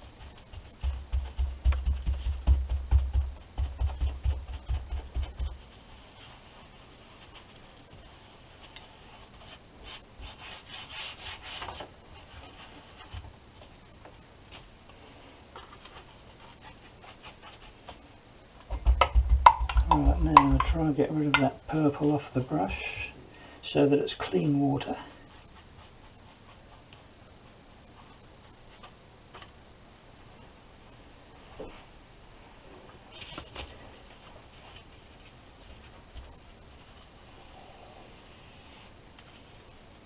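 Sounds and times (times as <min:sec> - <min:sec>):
paintbrush scrubbing on board: 0:03.6 - 0:13.1, 0:15.9 - 0:17.8, 0:25.2 - 0:28.9.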